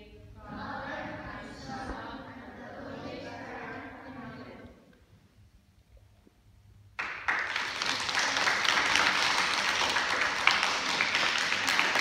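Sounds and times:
audience applauding: 0:07.0 - 0:12.0.

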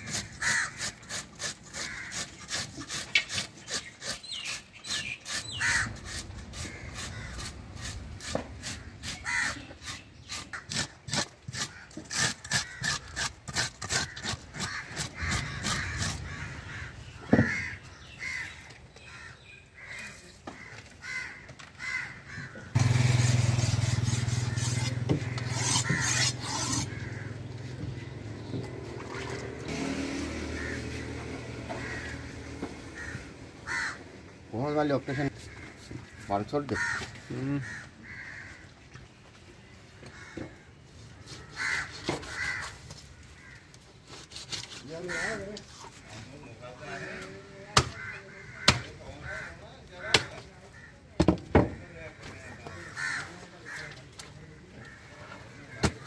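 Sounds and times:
crows cawing: 0:00.0 - 0:02.6, 0:05.0 - 0:07.6, 0:08.6 - 0:09.7, 0:10.5 - 0:22.8, 0:24.3 - 0:28.1, 0:30.5 - 0:31.0, 0:31.6 - 0:38.8, 0:40.0 - 0:43.9, 0:44.8 - 0:45.7, 0:46.8 - 0:56.0
knife scraping fish scales: 0:23.2 - 0:27.0, 0:44.0 - 0:45.0.

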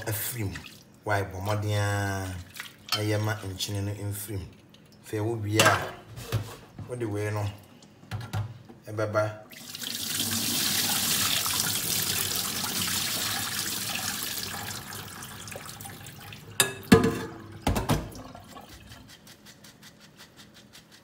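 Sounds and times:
water running into a metal sink: 0:09.5 - 0:18.9.

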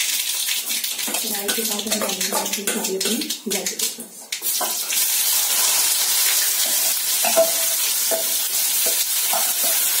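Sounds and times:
vegetables sizzling in oil: 0:04.4 - 0:10.0.

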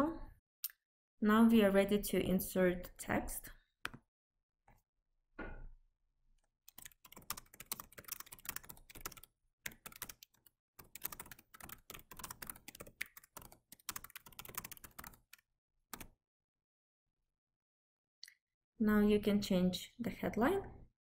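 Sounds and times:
typing on computer keyboard: 0:06.7 - 0:15.4.

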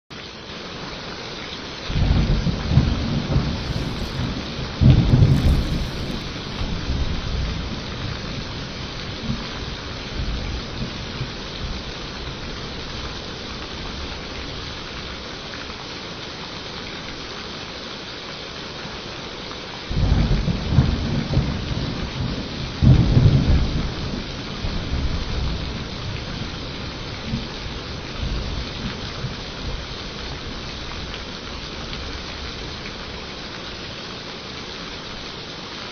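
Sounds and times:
steady rain: 0:00.1 - 0:35.9
thunder rumbling: 0:02.0 - 0:07.6.

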